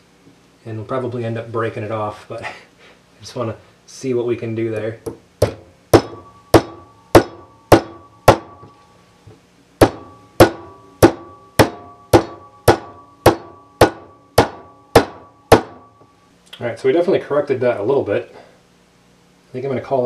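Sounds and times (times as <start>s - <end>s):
hammer tapping metal: 4.8s - 8.8s, 9.8s - 16.2s.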